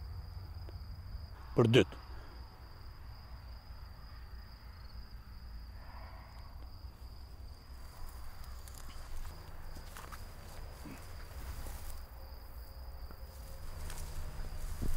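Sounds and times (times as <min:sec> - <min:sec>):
insects trilling: 0:00.0 - 0:14.9.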